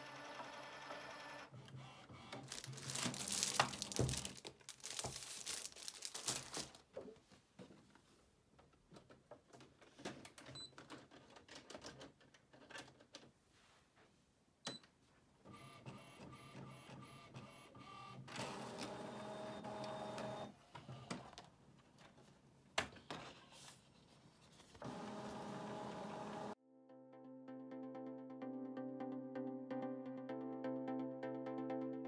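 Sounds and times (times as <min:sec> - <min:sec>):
printer motor whirring: 0:17.8 - 0:20.5, 0:24.8 - 0:26.6.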